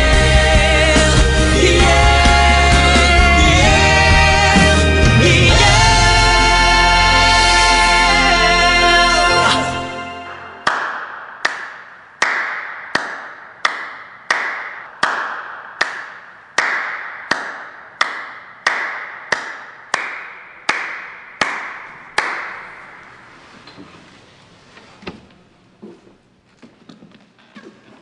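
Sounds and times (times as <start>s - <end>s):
person clapping slowly: 10.6s - 22.7s.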